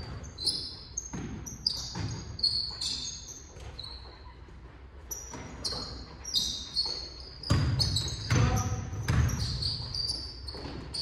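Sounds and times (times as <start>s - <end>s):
basketball bouncing on floor: 0.0s - 2.8s, 6.8s - 11.0s
sneakers squeaking on hardwood floor: 0.0s - 11.0s.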